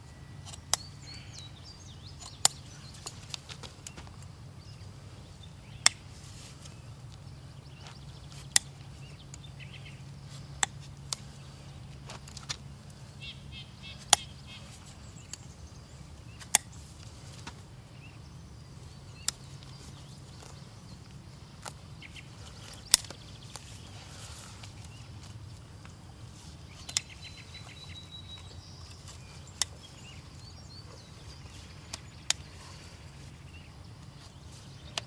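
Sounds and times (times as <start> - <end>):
hoof nippers snapping: 2.1 - 4.3, 7.8 - 9.5, 19.2 - 26.0, 31.3 - 32.8.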